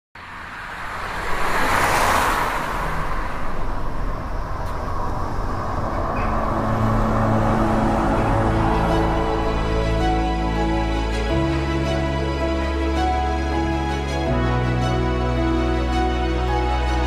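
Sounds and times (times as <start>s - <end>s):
whoosh of noise: 0.4s - 10.7s
low sustained tones: 3.4s - 17.0s.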